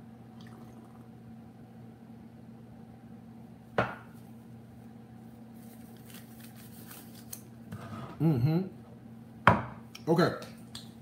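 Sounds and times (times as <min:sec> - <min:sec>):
steady low hum: 0:00.0 - 0:11.0
cup set down on counter: 0:03.8 - 0:04.1.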